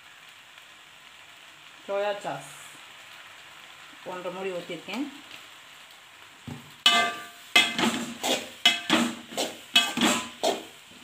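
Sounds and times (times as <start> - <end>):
metal spoon clanking on pan: 6.9 - 10.6.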